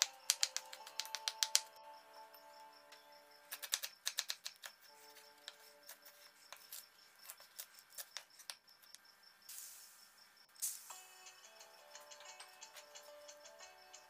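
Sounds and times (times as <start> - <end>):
soft background music: 0.0 - 6.8, 10.6 - 14.0
short hiss: 9.5 - 10.0.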